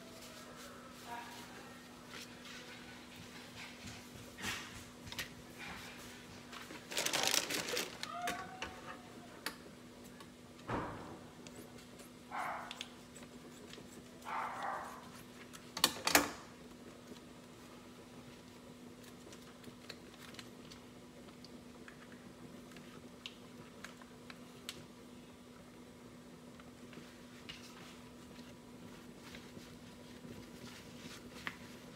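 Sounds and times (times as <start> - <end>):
paper and plastic wrap crackling: 6.4 - 9.1, 18.3 - 21.4.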